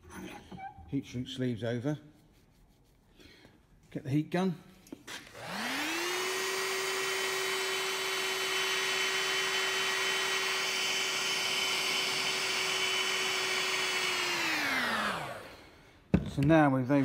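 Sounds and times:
heat gun fan whining: 5.2 - 16.1.

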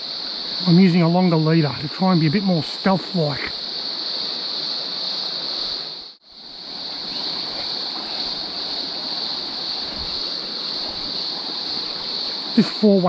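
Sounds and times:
insect chorus: 0.0 - 13.0
stream running over stones: 0.0 - 13.0.

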